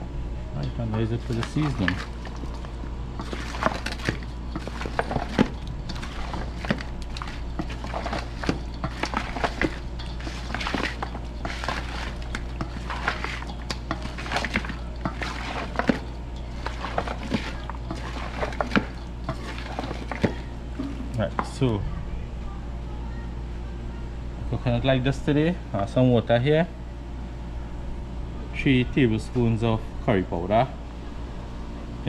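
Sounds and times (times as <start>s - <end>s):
steady low hum: 0.0s - 32.0s
wooden spoon scraping metal bowl: 0.6s - 21.6s.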